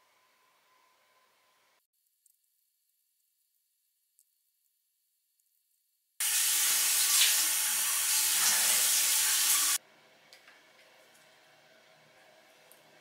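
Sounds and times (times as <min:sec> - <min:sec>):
bathroom tap running: 0:06.2 - 0:09.8.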